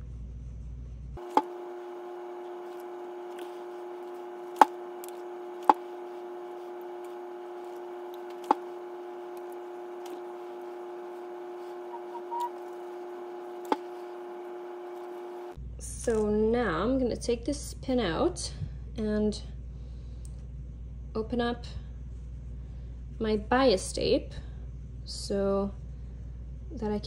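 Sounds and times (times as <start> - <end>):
steady hum: 1.0 - 15.6.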